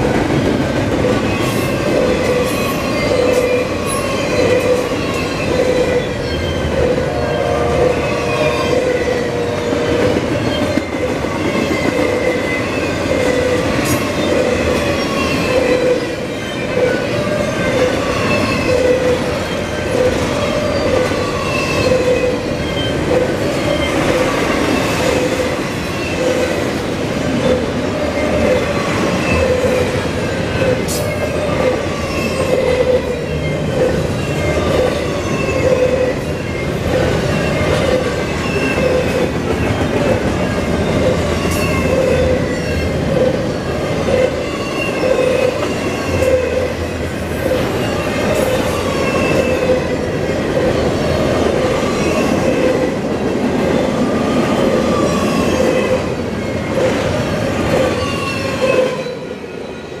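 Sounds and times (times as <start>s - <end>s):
steel wheels rumbling on rail: 0.0s - 60.0s
high wheel squeals: 1.2s - 13.6s, 30.8s - 46.8s.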